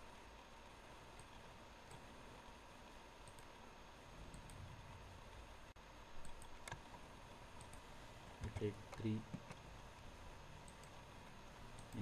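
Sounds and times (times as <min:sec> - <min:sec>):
faint steady hum: 0:00.0 - 0:12.0
computer mouse clicks: 0:01.1 - 0:02.1, 0:03.2 - 0:03.6, 0:04.2 - 0:04.7, 0:06.2 - 0:06.9, 0:07.5 - 0:09.6, 0:10.6 - 0:11.0, 0:11.7 - 0:12.0.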